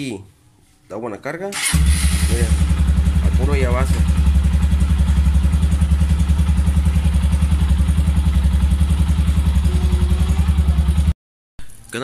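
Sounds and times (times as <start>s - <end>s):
motorcycle engine idling: 1.6s - 11.1s.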